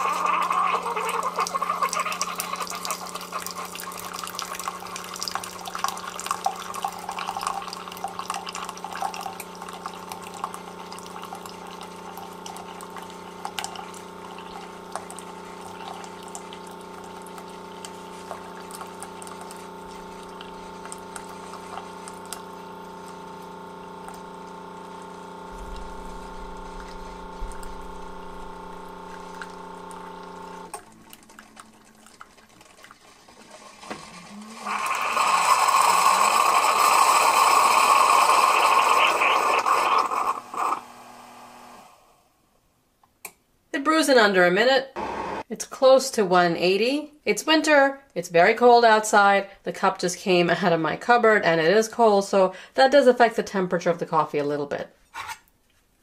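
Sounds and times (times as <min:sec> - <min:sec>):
coffee splashing into mug: 0:00.0 - 0:23.3, 0:24.1 - 0:40.2
coffee maker pump humming: 0:00.0 - 0:42.2, 0:45.0 - 0:45.5.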